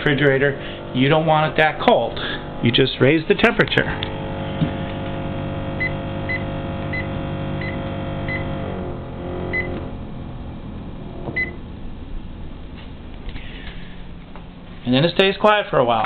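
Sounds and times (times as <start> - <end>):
refrigerator fan buzzing: 0.0 - 16.0
control panel beeps: 5.8 - 8.5, 9.5 - 9.8.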